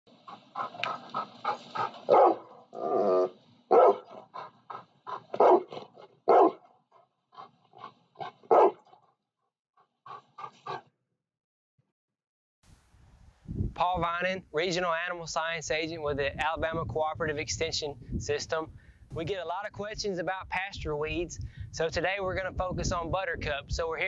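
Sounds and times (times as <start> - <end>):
dog barking: 0.6 - 2.5, 3.7 - 4.2, 5.3 - 6.7, 8.5 - 8.8.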